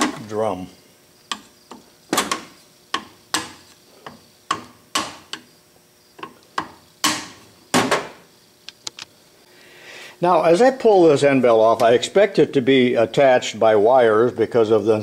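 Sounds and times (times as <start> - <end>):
hammer tapping steel punch: 1.3 - 5.5, 6.2 - 7.4.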